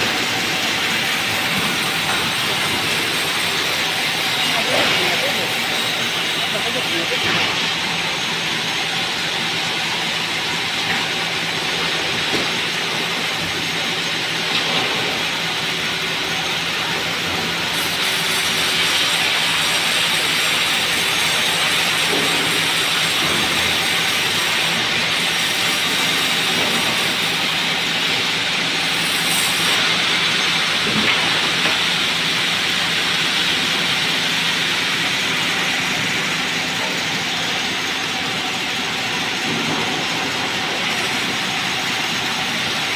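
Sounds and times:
sawmill machinery running: 0.0 - 42.9.

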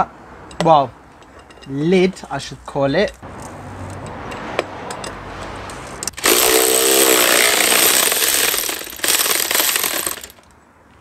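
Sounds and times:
electric ratchet whining buzz: 6.1 - 10.3.

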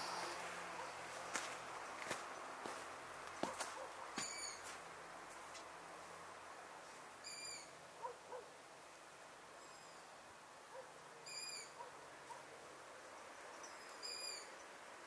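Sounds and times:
faint steady hiss: 0.0 - 15.0
bird calling: 4.2 - 4.7.

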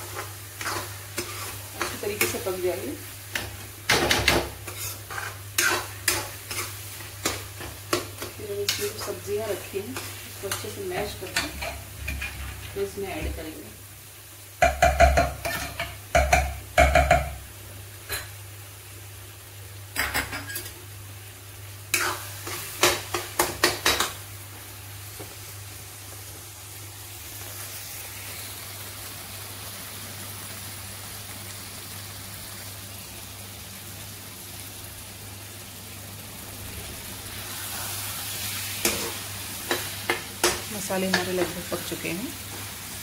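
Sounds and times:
metal spatula scraping a pan: 0.0 - 2.5, 4.1 - 9.2, 9.9 - 12.9
masala sizzling in oil: 0.0 - 43.0.

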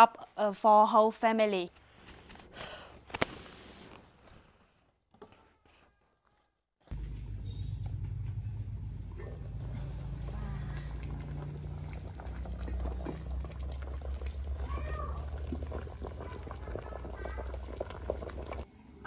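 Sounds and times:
water boiling: 8.8 - 18.7
fire popping and crackling: 9.6 - 18.7.

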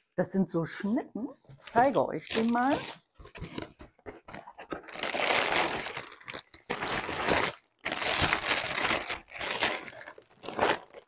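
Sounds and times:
plastic bag crinkling: 2.2 - 11.0.

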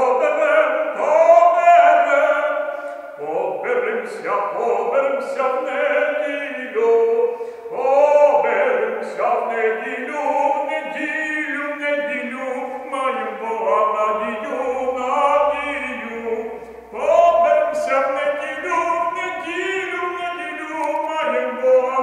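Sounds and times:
person singing long held notes: 0.0 - 22.0.

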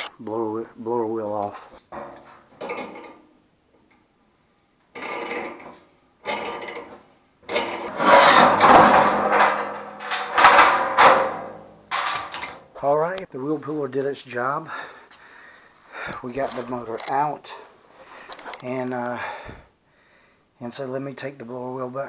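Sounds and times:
metal scraping and creaking: 1.6 - 3.3, 5.0 - 12.7.

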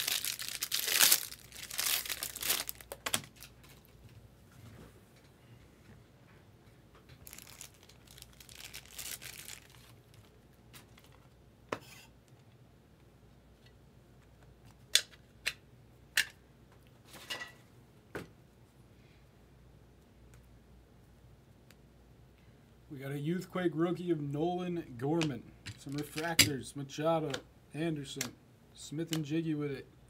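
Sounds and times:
foil wrapper crinkling and tearing: 0.0 - 3.8, 7.2 - 11.2.

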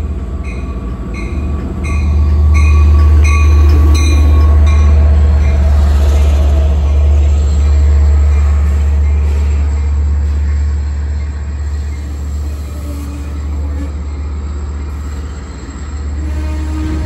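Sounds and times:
train rumbling past: 0.0 - 17.0.

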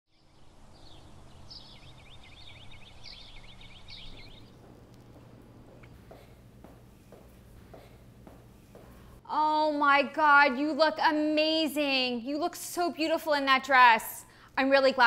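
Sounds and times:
songbird chirping rapidly: 0.1 - 5.3
faint low hum: 0.2 - 9.8.

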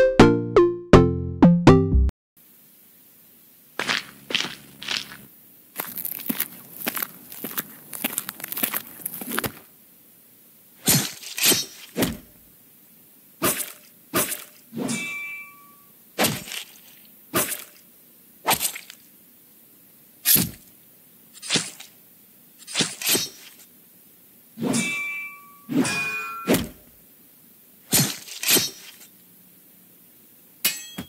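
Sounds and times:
cartoon hits and thwacks: 13.4 - 14.5, 16.2 - 16.7, 20.3 - 20.6, 21.4 - 21.9, 22.7 - 23.5, 25.8 - 26.8, 27.9 - 29.0
metallic ring of a hit: 14.8 - 15.8, 24.6 - 26.6, 30.6 - 31.0.

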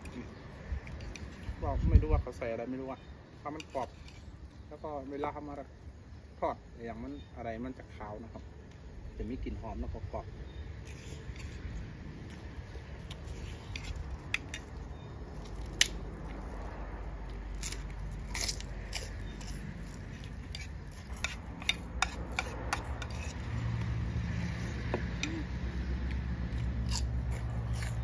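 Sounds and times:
chewing and crunching: 17.3 - 25.4, 26.0 - 28.0.

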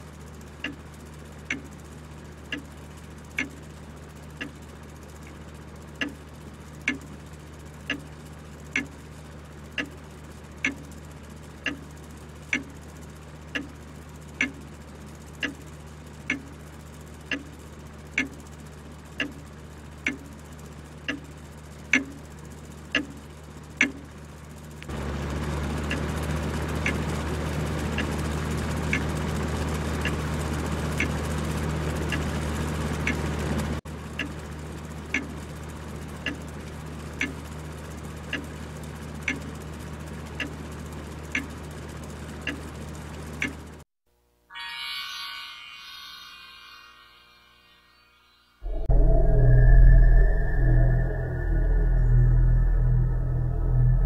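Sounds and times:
ceiling fan whirring: 0.0 - 43.8, 44.4 - 54.0
clock ticking: 1.5 - 1.7, 3.3 - 3.6, 6.0 - 6.2, 6.8 - 7.1, 7.9 - 8.1, 8.7 - 9.0, 9.7 - 10.0, 11.6 - 11.9, 12.5 - 12.8, 13.6 - 13.8, 14.4 - 14.7, 15.4 - 15.6, 16.3 - 16.5, 17.3 - 17.6, 18.2 - 18.4, 19.2 - 19.4, 20.0 - 20.3, 21.9 - 22.2, 23.0 - 23.2, 23.8 - 24.0, 35.1 - 35.4, 36.2 - 36.5, 37.2 - 37.4, 39.2 - 39.5, 40.4 - 40.6
low hum: 44.5 - 54.0.

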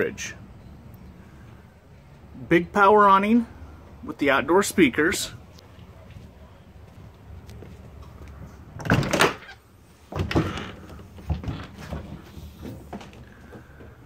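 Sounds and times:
door latch clattering: 8.8 - 9.6.

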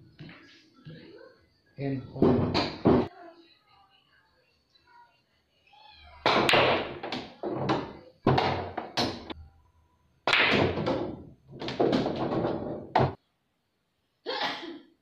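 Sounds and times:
pool balls clacking: 6.3 - 9.3, 10.3 - 13.2.

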